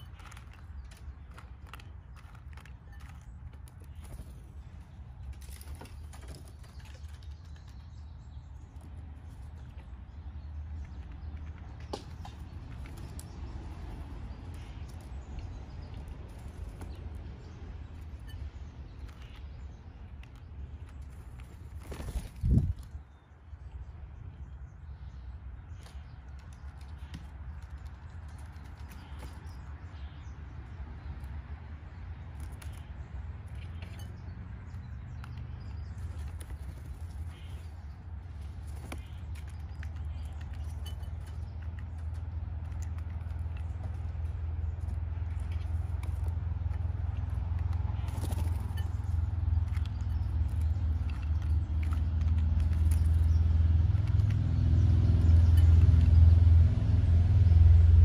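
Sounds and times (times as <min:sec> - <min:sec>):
bird pecking peanuts in bowl: 0:00.0 - 0:07.9, 0:32.3 - 0:56.3.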